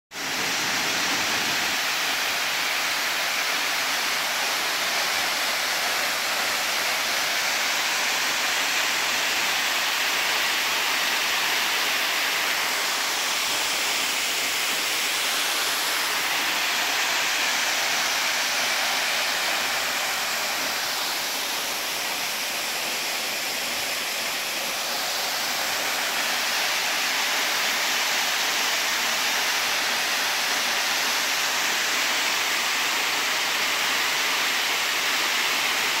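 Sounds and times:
waterfall rushing: 0.2s - 36.0s.

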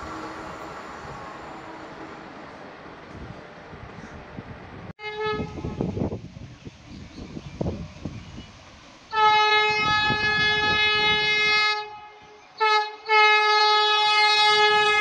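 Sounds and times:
train horn blasts: 5.0s - 6.0s, 9.1s - 15.0s.

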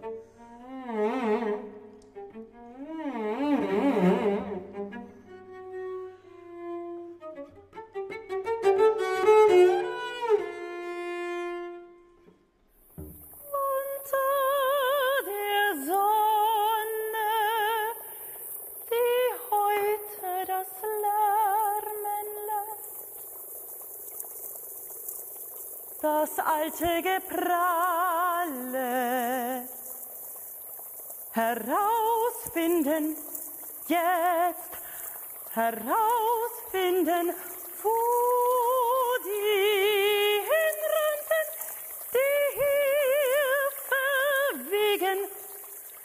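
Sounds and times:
bowed cello with vibrato: 0.0s - 13.4s
woman singing with vibrato: 13.4s - 18.2s, 18.9s - 22.9s, 26.0s - 29.8s, 31.3s - 34.8s, 35.5s - 45.8s.

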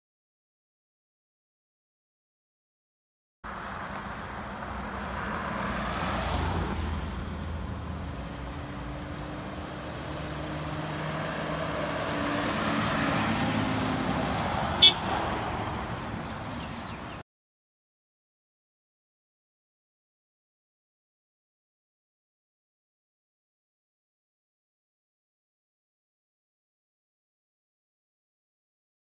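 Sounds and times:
fire truck driving past: 3.5s - 16.2s.

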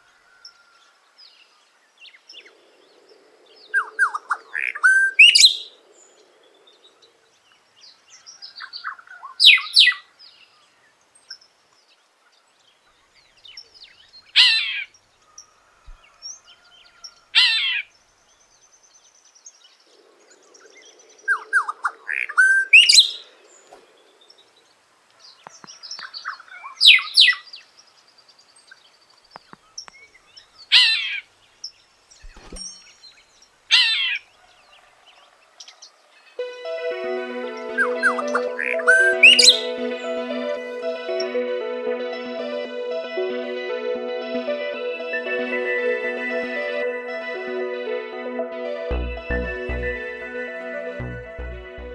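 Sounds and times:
soft bird chirps: 0.0s - 36.4s
bird whistled phrases: 37.8s - 39.7s.

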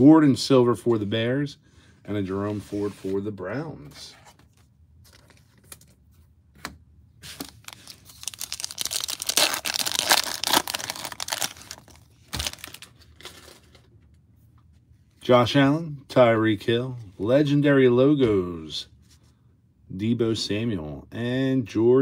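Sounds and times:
card pack wrapper tearing: 7.4s - 13.7s.

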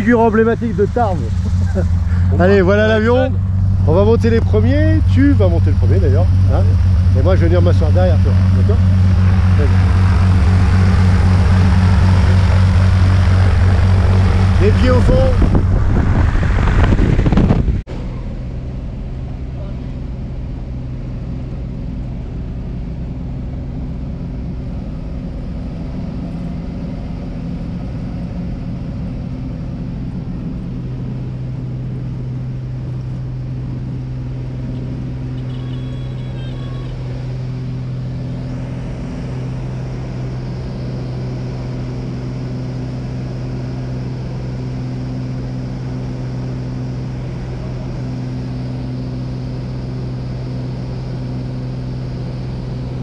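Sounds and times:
light aircraft engine droning: 0.0s - 53.0s.

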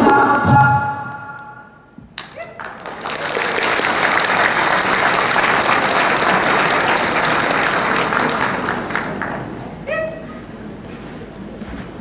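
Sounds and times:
audience applauding: 2.2s - 9.8s.

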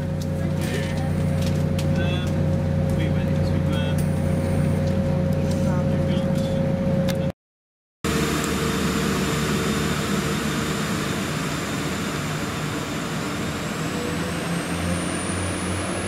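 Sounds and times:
diesel train engines accelerating: 8.1s - 16.0s
high whine rising in pitch: 8.1s - 16.0s.

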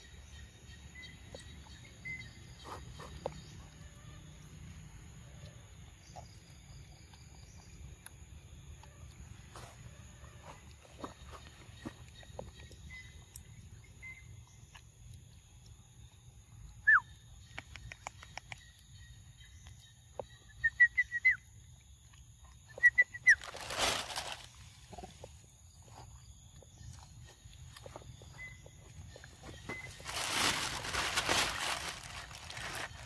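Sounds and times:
bird whistle: 16.8s - 17.2s, 20.4s - 21.4s, 22.7s - 23.4s
rustling: 23.3s - 25.1s, 29.5s - 33.0s.

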